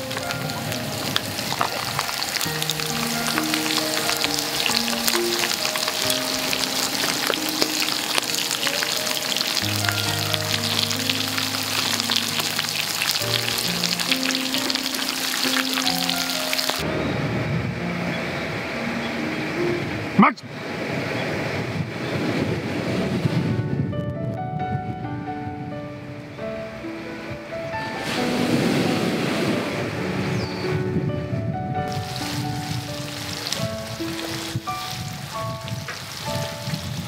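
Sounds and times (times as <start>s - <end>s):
oil and garlic sizzling: 0.0s - 16.8s, 31.9s - 37.0s.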